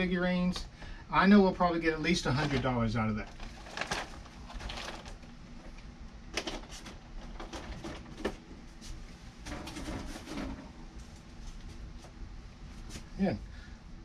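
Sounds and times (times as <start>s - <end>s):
items shuffled in a box: 2.3s - 5.3s.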